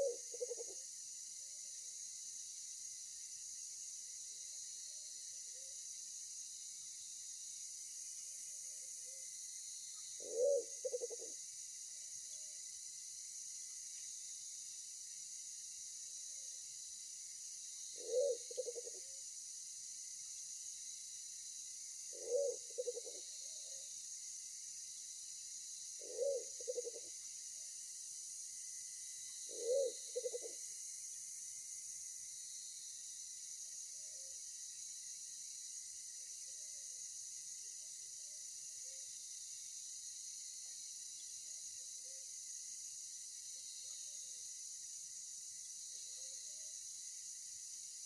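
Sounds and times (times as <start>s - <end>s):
pigeon cooing: 0.0s - 0.7s, 10.2s - 11.2s, 18.0s - 19.0s, 22.2s - 23.2s, 26.0s - 27.0s, 29.5s - 30.5s
insects hissing: 0.0s - 48.0s.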